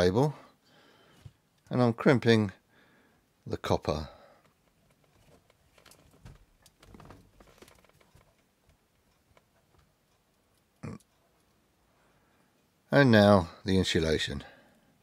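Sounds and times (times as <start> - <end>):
crimping tool ticks and rustling: 4.5 - 11.6.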